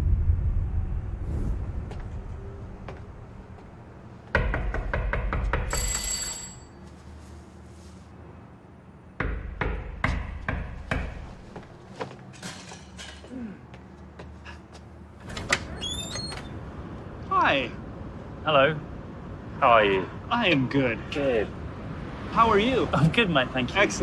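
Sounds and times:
low rumble: 0.0 - 4.0
sharp knocks and clicks: 4.3 - 5.8
high ringing tone: 5.7 - 7.0.

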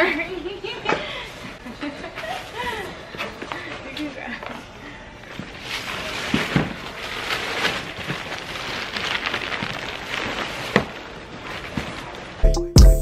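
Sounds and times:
plastic sack crinkling: 5.5 - 12.4.

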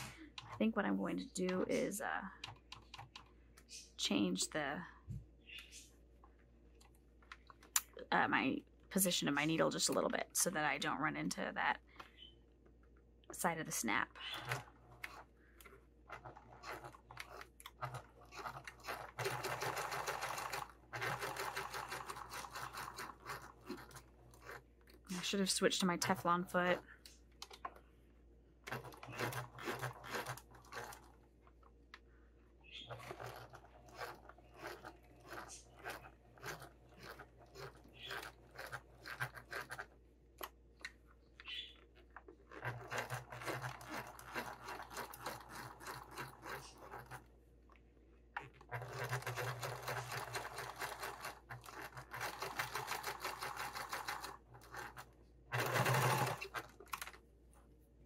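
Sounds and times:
sewing machine running: 16.1 - 26.8, 28.7 - 31.2, 32.8 - 40.0, 42.5 - 47.3, 48.7 - 57.2.

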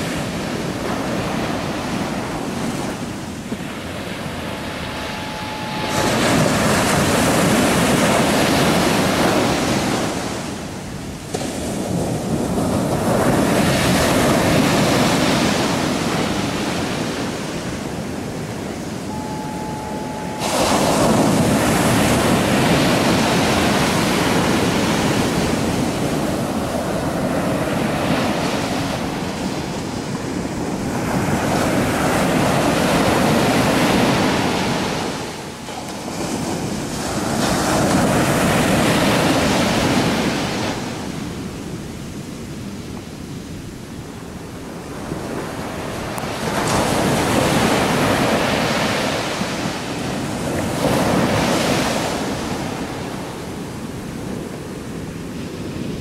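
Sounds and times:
surf breaking on shore: 0.0 - 41.6.

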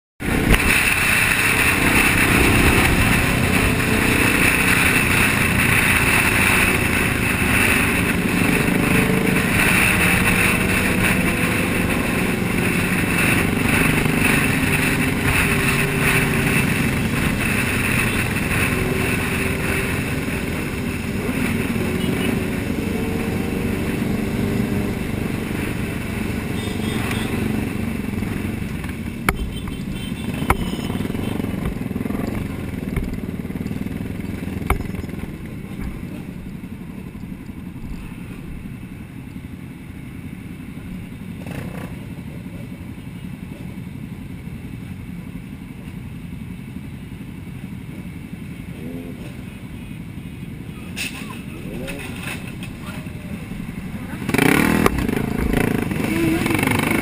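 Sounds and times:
wind rush on microphone: 0.2 - 26.4
motorcycle engines running: 0.2 - 57.0.

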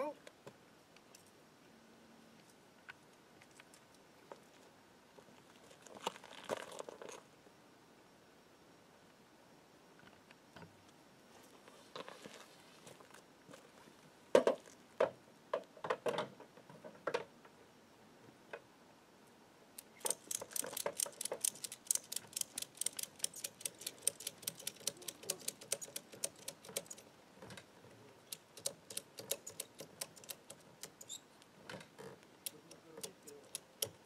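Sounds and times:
ratchet clicking rapidly: 20.0 - 27.0, 28.3 - 31.1, 32.5 - 34.0.

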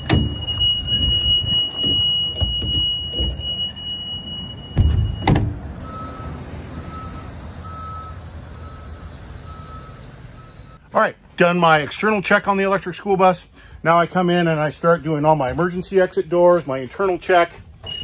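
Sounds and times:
door shutting clunks: 0.0 - 3.7, 4.7 - 5.6
quiet repeating beep: 0.0 - 10.8.

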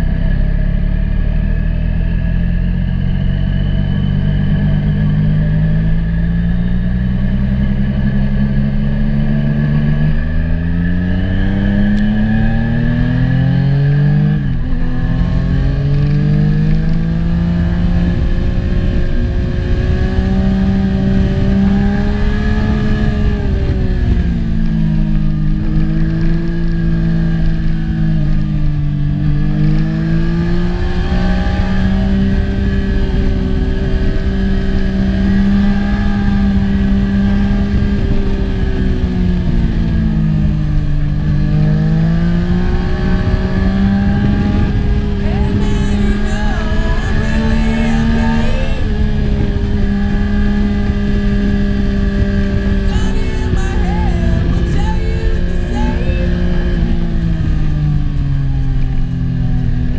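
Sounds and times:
motorcycle engine revving: 0.0 - 59.9
wind rush: 42.7 - 59.0.

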